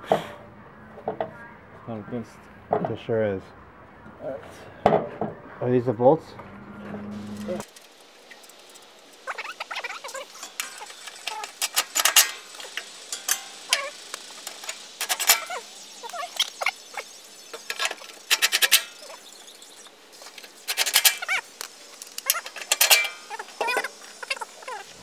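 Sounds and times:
rapid clicking of bolts: 7.6 - 16.6, 17.5 - 19.2, 20.2 - 24.4.

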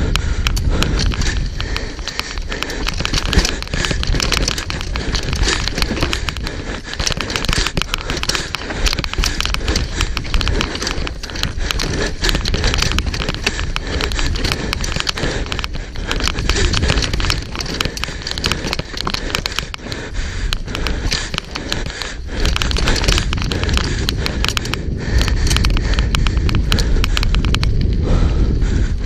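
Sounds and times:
bike rattling over bumps: 0.0 - 29.0
bike tyres rolling over rocks: 0.0 - 29.0
wind on microphone: 0.0 - 29.0.

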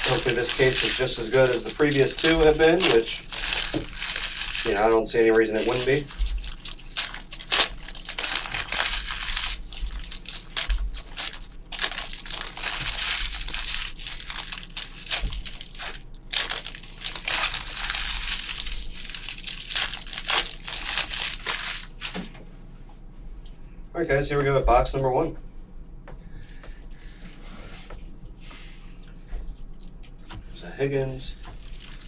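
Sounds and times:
plastic shrink wrap crinkling: 0.0 - 22.3, 31.3 - 32.0
plastic wrap tearing: 0.0 - 22.3, 31.4 - 32.0.

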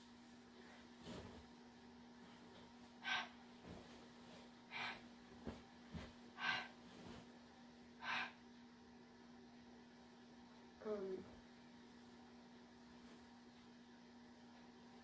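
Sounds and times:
faint footstep thuds: 5.3 - 6.3.

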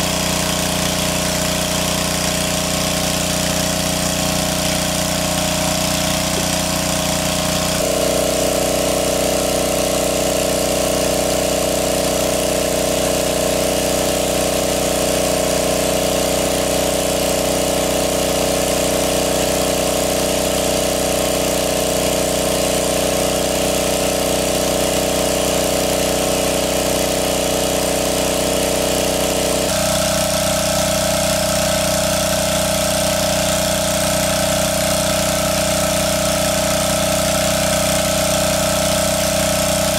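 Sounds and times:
water pump engine running: 0.0 - 39.9.

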